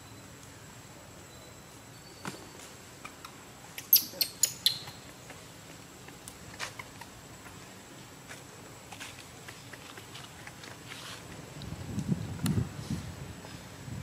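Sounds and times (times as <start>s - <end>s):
macaques squeaking: 3.0s - 5.4s, 6.5s - 7.6s.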